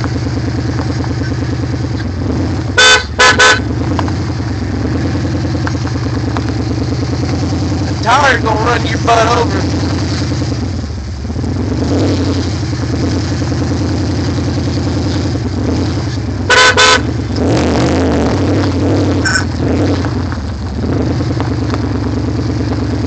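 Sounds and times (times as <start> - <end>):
truck engine idling: 0.0 - 23.0
car horn toots: 2.7 - 3.9, 16.4 - 17.2, 19.2 - 19.6.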